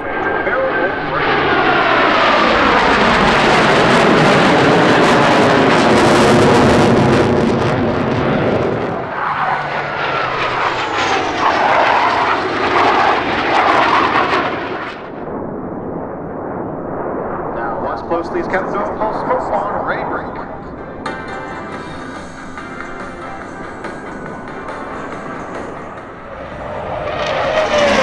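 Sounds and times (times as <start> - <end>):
jets flying low overhead: 0.0 - 28.0
whining jet engine tones: 0.0 - 28.0.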